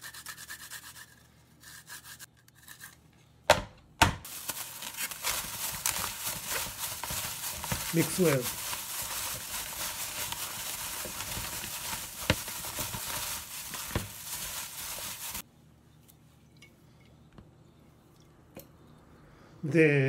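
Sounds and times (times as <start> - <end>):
gloved hand mixing radish cubes: 4.3 - 15.4.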